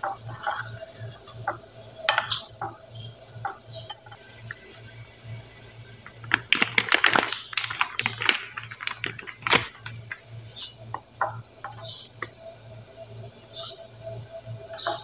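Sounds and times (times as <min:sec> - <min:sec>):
plastic packet crinkling: 0:06.1 - 0:10.2.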